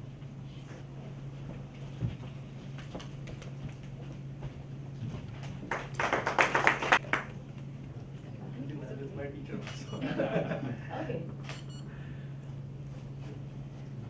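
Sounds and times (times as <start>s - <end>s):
steady low hum: 0.0s - 14.0s
people clapping: 5.4s - 7.4s.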